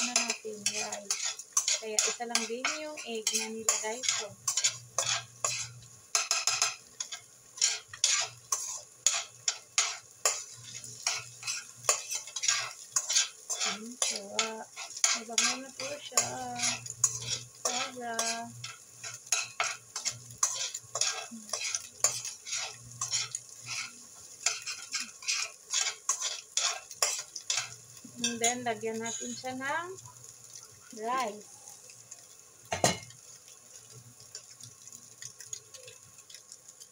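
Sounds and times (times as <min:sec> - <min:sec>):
spatula scraping a steel pan: 0:00.0 - 0:28.4
light frying sizzle: 0:00.0 - 0:36.9.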